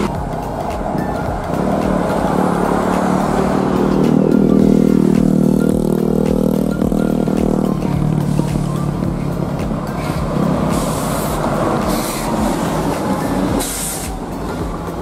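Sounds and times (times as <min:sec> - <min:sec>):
bus passing close: 0:00.0 - 0:15.0
short bursts of hiss: 0:13.6 - 0:14.2.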